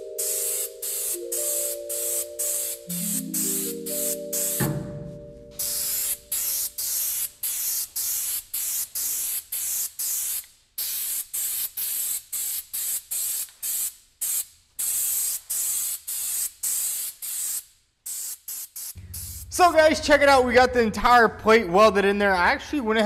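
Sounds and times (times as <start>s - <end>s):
spray-paint can spraying: 0.0s - 4.8s, 5.6s - 19.6s.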